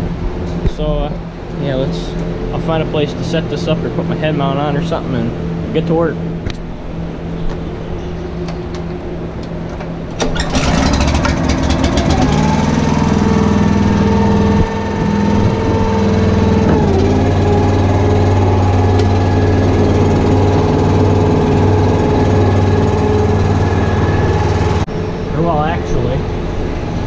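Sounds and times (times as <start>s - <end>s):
small engine running: 10.2s - 26.6s.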